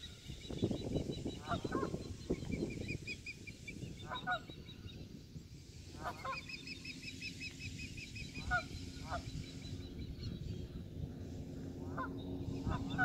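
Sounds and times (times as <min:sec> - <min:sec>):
geese honking: 0:06.0 - 0:06.6, 0:11.9 - 0:13.0.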